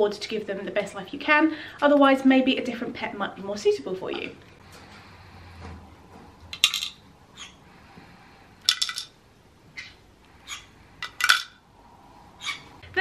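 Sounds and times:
plastic toy pieces clinking: 6.5 - 7.0, 8.6 - 9.2, 11.0 - 11.6.

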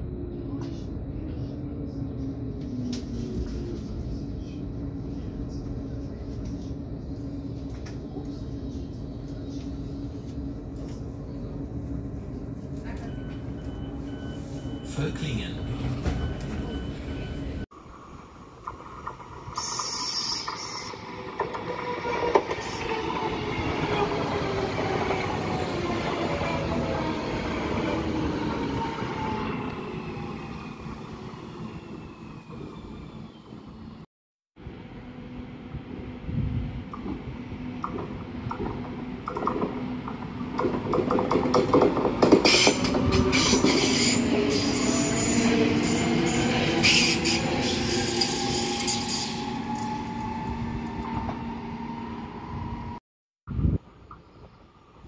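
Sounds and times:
train running on rails: 0.0 - 33.9, 34.6 - 53.0
train wheels clattering on rails: 37.8 - 44.2.

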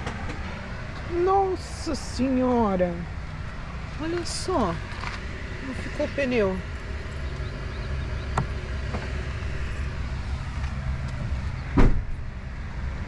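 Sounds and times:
vehicle engine rumbling: 0.0 - 13.0
short thump: 11.7 - 12.2.

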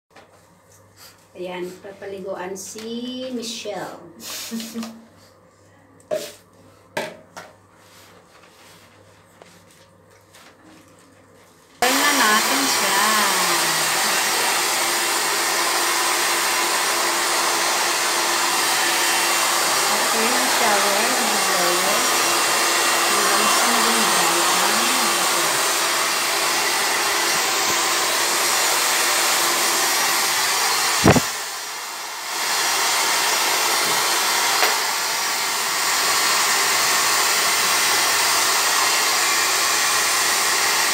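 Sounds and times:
blow dryer blowing: 4.2 - 5.0, 11.8 - 40.9.

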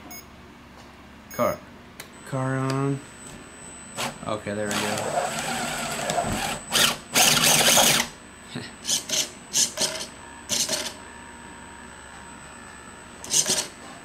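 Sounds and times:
small electric motors whirring: 4.7 - 8.1, 13.2 - 13.7.

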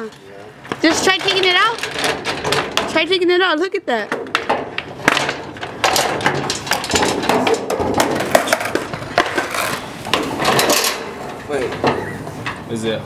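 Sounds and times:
chain rattling against metal: 0.9 - 3.1, 9.5 - 11.8.

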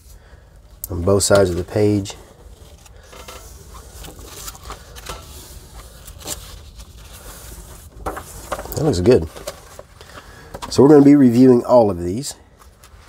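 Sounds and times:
paper pages turning: 1.0 - 11.2.

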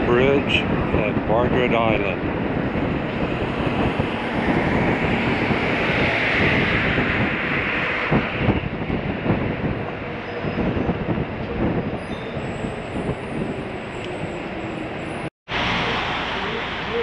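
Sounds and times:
traffic: 0.0 - 17.0
bus rumble and hiss: 14.8 - 17.0.

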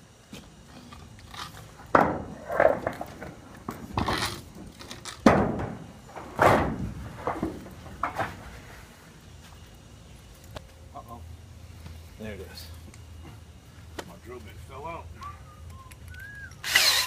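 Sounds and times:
steel panel bangs and thuds: 1.9 - 8.5.

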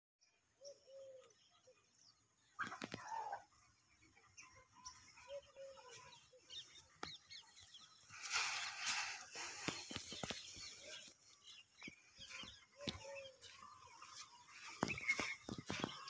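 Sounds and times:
chickens clucking: 2.4 - 11.3, 11.9 - 16.0
drawn-out chicken calls: 2.6 - 7.6, 12.0 - 16.0.

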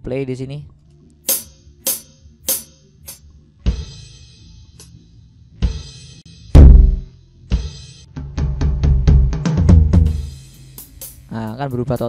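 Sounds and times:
electronic drum hits: 1.3 - 4.1, 6.5 - 7.2
deep bass drum hit: 6.5 - 7.1
steady low hum: 6.5 - 7.4.

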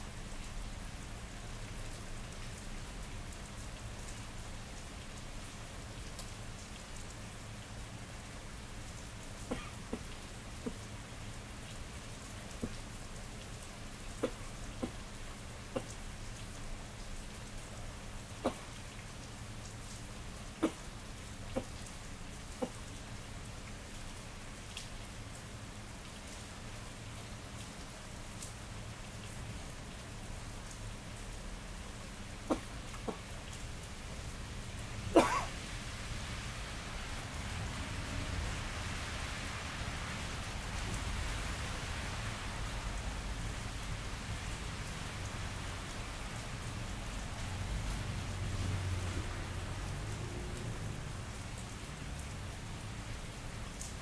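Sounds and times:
rain falling on pavement: 0.0 - 54.0
close water drips: 1.7 - 23.9, 27.4 - 35.5.

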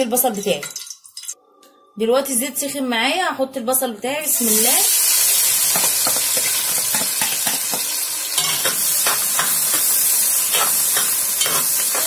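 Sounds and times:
onions sizzling in oil: 4.3 - 12.0.

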